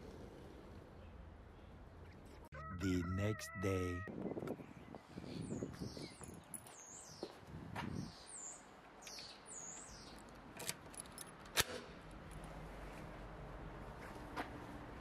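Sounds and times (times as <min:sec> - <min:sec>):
small birds chirping: 0:00.4 - 0:10.3.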